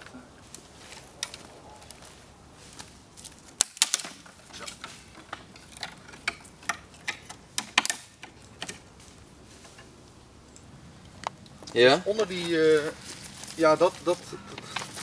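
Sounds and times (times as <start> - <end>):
dry twigs snapping: 0.0 - 9.2.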